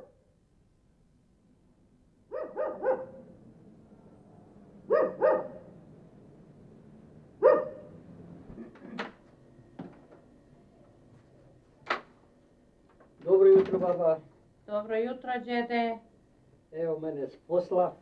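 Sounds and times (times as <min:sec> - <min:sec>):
dog barking: 0:02.3 - 0:03.3, 0:04.9 - 0:05.7, 0:07.4 - 0:08.0
door latch clicks: 0:11.8 - 0:12.2.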